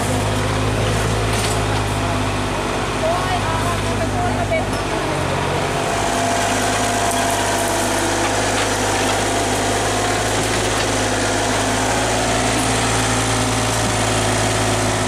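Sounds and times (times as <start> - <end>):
excavator engine running: 0.0 - 15.0
excavator arm pushing through brush: 5.9 - 14.3.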